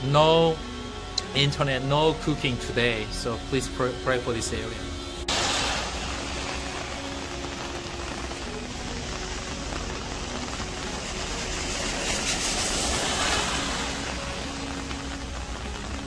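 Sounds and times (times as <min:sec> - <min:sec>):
rain falling on wet street: 0:05.3 - 0:16.0.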